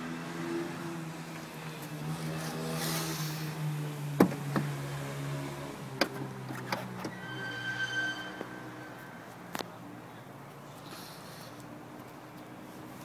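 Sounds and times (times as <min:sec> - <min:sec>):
car door latch clicking: 0:04.2 - 0:04.7.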